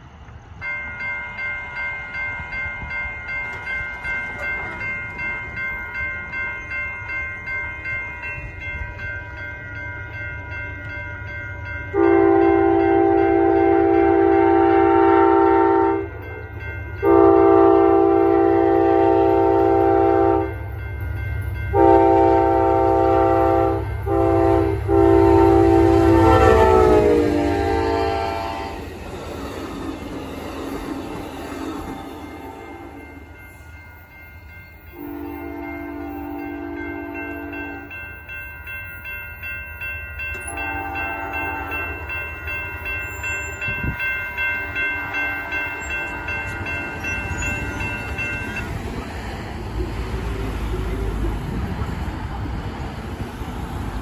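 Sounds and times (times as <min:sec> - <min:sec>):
crossing warning bell ringing: 0:00.0 - 0:54.0
diesel locomotive rumble: 0:02.4 - 0:54.0
locomotive horn blasts: 0:11.9 - 0:16.2, 0:17.0 - 0:20.6, 0:21.7 - 0:28.9, 0:34.9 - 0:37.9, 0:40.5 - 0:42.1.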